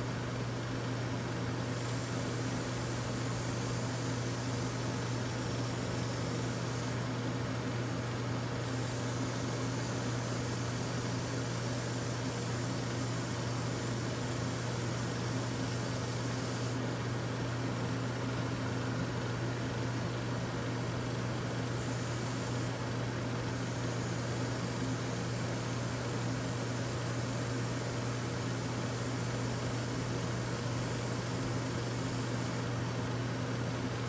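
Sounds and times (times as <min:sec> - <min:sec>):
air hissing: 0:08.6 - 0:16.8.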